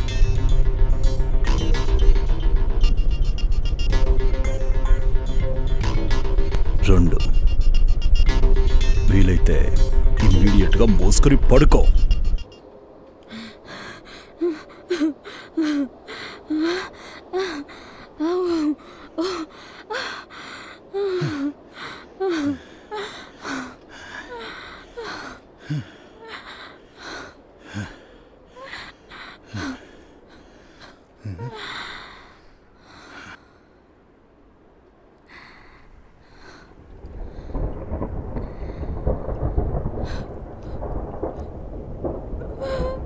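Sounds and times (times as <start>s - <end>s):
woman gasping for breath: 13.2s - 33.5s
woman whimpering cries: 13.3s - 32.3s, 42.4s - 43.0s.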